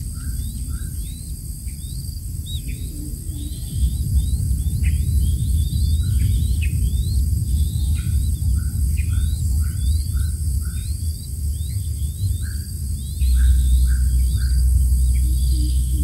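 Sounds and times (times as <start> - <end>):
small bird chirping: 0.0 - 16.0
steady low rumble: 0.0 - 16.0.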